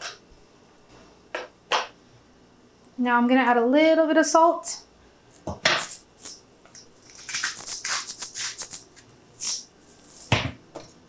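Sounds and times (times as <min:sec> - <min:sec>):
salt shaker rattling: 0:05.8 - 0:10.4.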